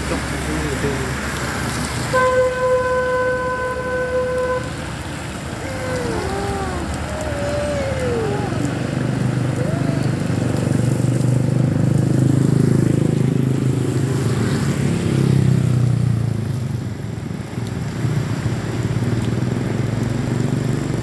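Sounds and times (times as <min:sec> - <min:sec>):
rain and wet tyres hissing: 0:00.0 - 0:21.0
motorcycles riding past: 0:05.3 - 0:16.2.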